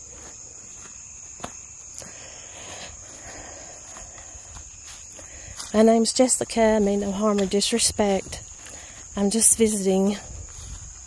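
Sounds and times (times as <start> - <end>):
high-pitched insect chorus: 0.0 - 11.0
soft footsteps on grass: 0.0 - 11.0.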